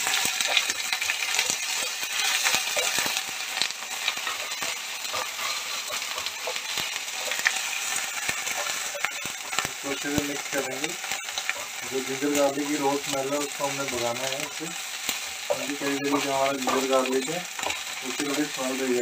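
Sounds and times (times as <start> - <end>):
onions frying in oil: 0.0 - 19.0
wooden spatula scraping pan: 4.2 - 7.8.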